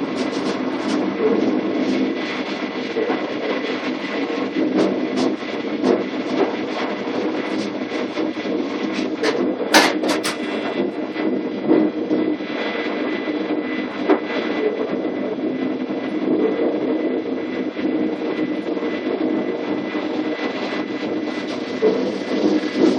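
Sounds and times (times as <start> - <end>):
train running gear hum: 0.0 - 22.9
sharp knocks: 9.7 - 10.5.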